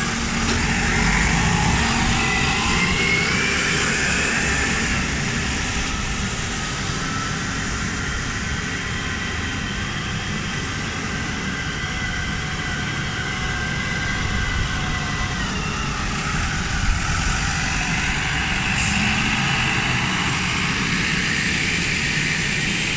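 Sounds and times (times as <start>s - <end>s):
forklift diesel engine running: 0.0s - 7.6s, 15.8s - 22.9s
whine: 0.0s - 22.9s.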